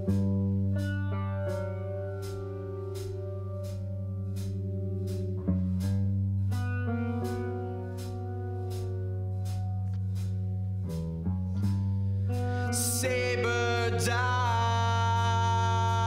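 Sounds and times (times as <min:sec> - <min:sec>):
bass guitar: 0:00.0 - 0:16.0
drums with cymbal hits: 0:00.0 - 0:16.0
electric guitar chords: 0:00.0 - 0:16.0.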